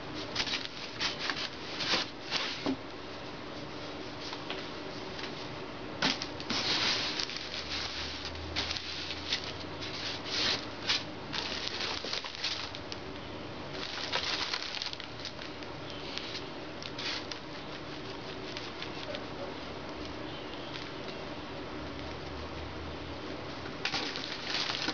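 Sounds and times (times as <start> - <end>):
plastic bag crinkling: 6.0 - 13.0, 13.7 - 19.2, 23.8 - 24.9.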